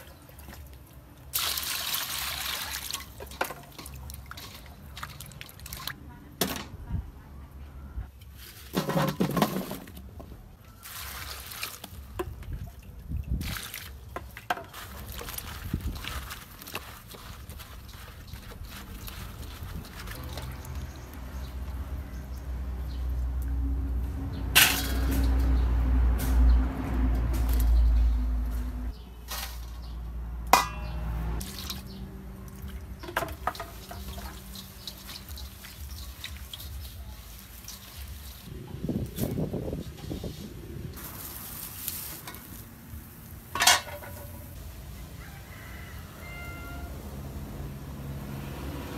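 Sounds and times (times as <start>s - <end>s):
water sloshing in a steel bowl: 0.0s - 6.1s, 8.2s - 25.6s, 30.5s - 42.7s
hands rustling leafy greens: 10.8s - 12.8s, 13.4s - 22.5s, 31.4s - 43.5s
clink against metal colander: 30.6s - 31.0s, 43.6s - 44.4s
water running: 31.4s - 38.5s.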